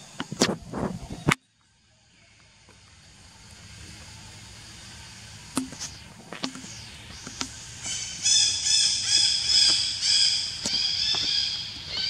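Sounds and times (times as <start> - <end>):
high-pitched pulsing animal calls: 3.4 - 12.0.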